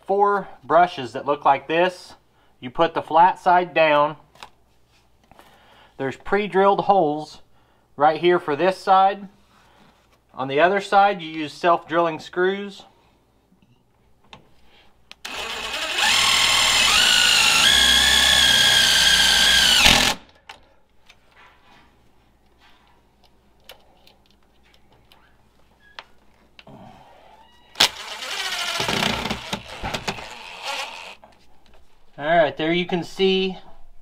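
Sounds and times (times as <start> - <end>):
power drill whining: 15.2 - 20.2, 27.7 - 31.2.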